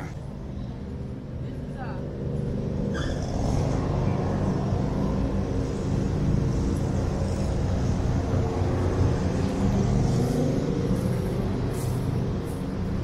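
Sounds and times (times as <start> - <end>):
engine rumbling: 0.0 - 13.0.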